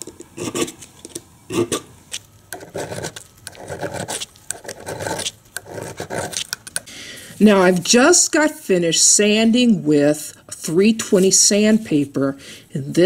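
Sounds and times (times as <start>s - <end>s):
needle file rasping on metal: 2.6s - 6.6s.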